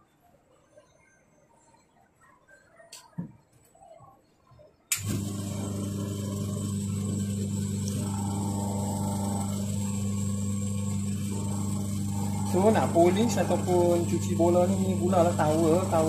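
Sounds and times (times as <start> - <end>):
motor switch click: 4.9 - 5.3
electric motor humming: 5.0 - 16.0.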